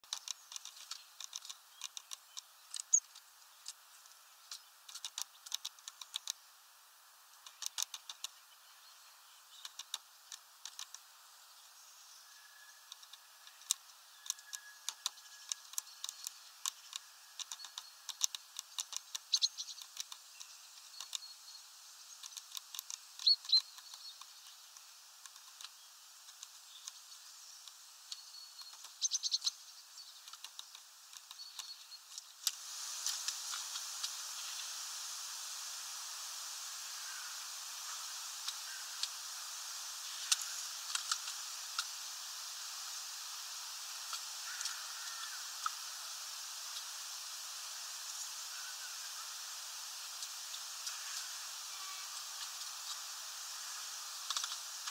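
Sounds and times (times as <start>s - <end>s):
faint high bird chirps: 0.1s - 3.7s, 11.4s - 22.4s, 23.2s - 24.6s, 26.6s - 32.2s
bird pecking at feeder: 4.9s - 6.4s, 7.4s - 8.3s, 12.9s - 21.2s.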